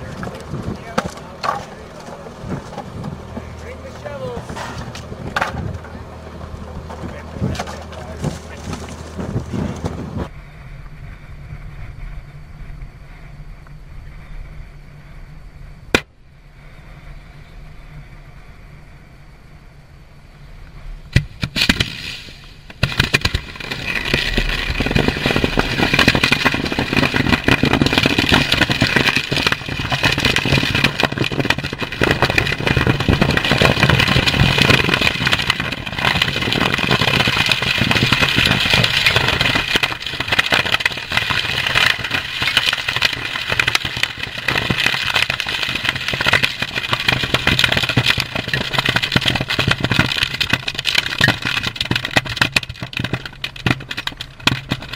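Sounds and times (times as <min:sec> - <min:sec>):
ammunition burning with rapid pops: 0:21.1 - 0:54.9.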